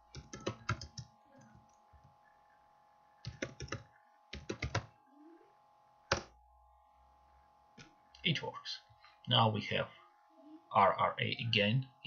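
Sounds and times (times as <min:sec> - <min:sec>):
faint steady hum: 0:00.0 - 0:12.0
typing on computer keyboard: 0:00.1 - 0:01.1, 0:03.2 - 0:04.9.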